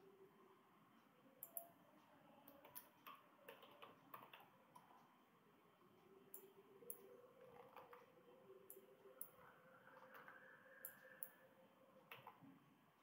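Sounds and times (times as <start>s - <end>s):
computer mouse clicks: 1.4s - 1.7s, 2.5s - 5.1s, 10.0s - 11.4s, 12.1s - 12.5s
keyboard typing: 3.5s - 4.9s.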